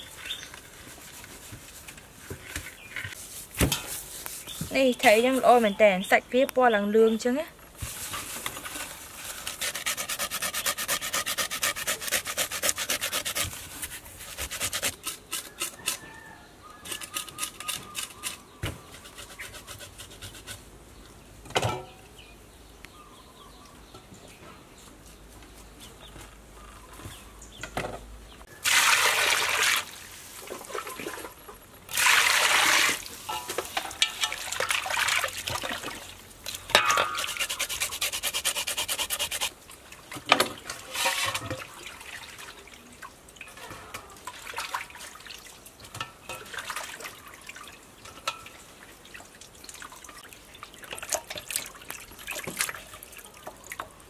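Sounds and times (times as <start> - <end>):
hands scraping salt into fish: 7.9 - 16.0, 37.0 - 39.5.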